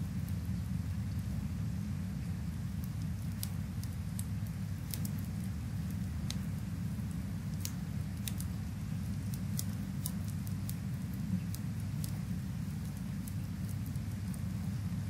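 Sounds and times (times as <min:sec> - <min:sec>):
wood fire crackling: 0:00.0 - 0:15.0.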